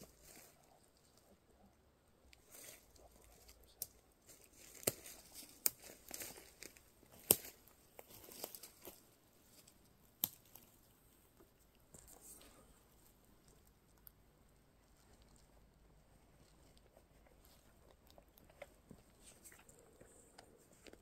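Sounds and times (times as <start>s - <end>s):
soft rustling and crackling: 0.0s - 21.0s
sharp snaps: 10.2s - 10.6s.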